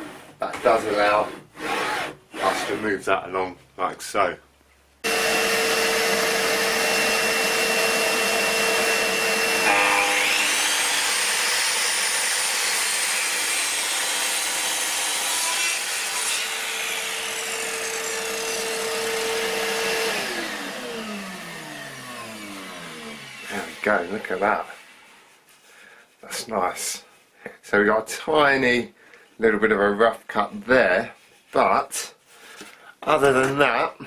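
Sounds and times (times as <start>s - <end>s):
saw blade cutting wood: 0.0s - 2.9s, 5.0s - 25.4s
mitre saw motor whine: 5.0s - 11.6s, 18.2s - 24.2s.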